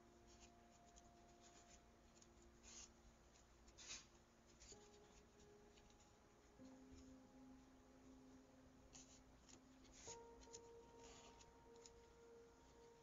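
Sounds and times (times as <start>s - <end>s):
soft sustained music notes: 0.0s - 13.0s
paper rustling and crinkling: 0.3s - 6.1s, 8.9s - 12.1s.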